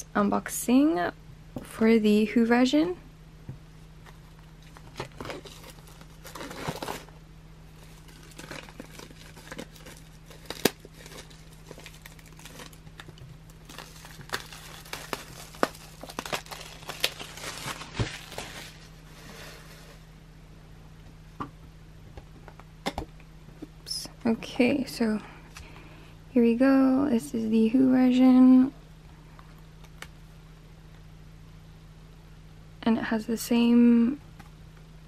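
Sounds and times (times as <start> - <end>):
plastic wrap crinkling and tearing: 4.3 - 19.0.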